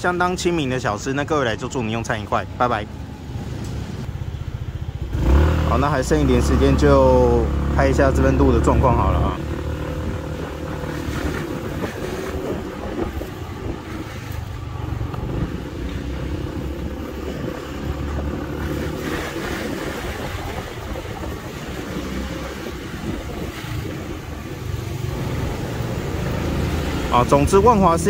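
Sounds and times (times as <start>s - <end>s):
passing vehicles on busy road: 0.0s - 28.0s.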